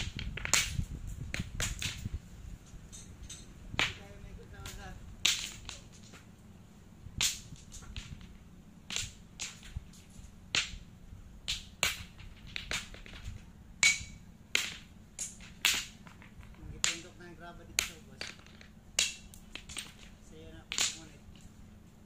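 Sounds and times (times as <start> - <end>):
stones clacking against rocks: 4.6 - 6.3, 11.5 - 17.2, 17.8 - 21.5.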